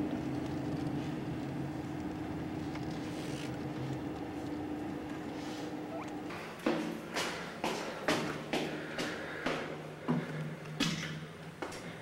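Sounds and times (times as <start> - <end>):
faint steady hum: 0.0 - 12.0
footsteps on hard floor: 6.2 - 10.3.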